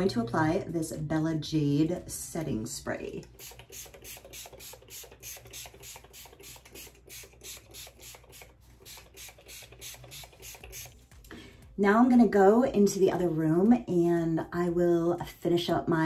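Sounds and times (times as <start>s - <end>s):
mist spray bottle hissing: 3.4s - 11.0s.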